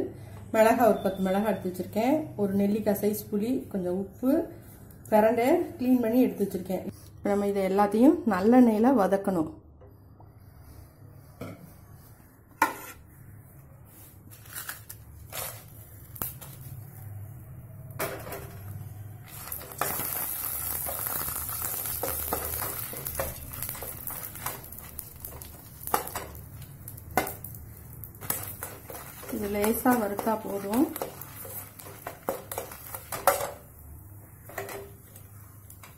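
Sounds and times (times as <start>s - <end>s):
spatula scraping pan: 12.5s - 13.1s, 28.2s - 33.6s
chillies sizzling in oil: 19.2s - 35.9s.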